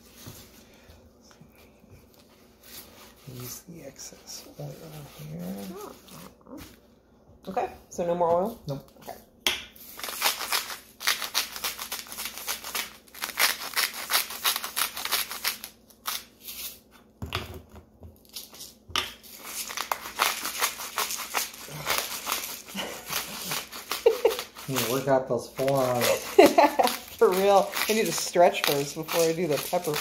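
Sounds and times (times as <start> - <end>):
spice grinder crunching: 9.8 - 16.8, 18.2 - 30.0.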